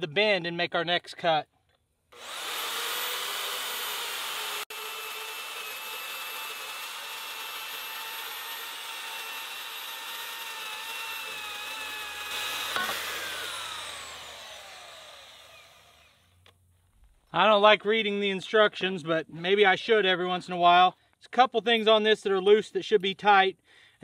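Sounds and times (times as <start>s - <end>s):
bandsaw cutting metal pipe: 2.1s - 16.4s.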